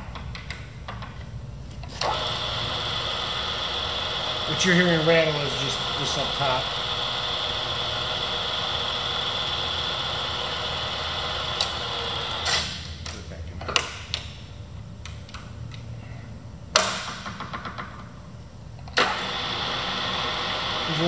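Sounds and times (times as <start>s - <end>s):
milling machine hum and whine: 1.8s - 12.7s, 19.0s - 21.0s.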